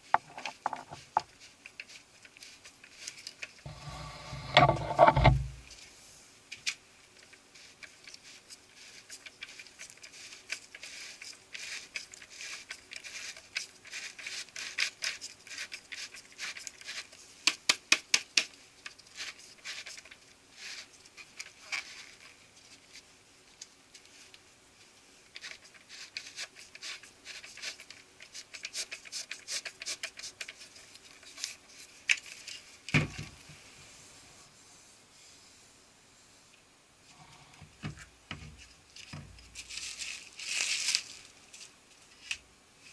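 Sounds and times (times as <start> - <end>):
powder pattering onto newspaper: 6.5 - 24.4, 39.1 - 42.4.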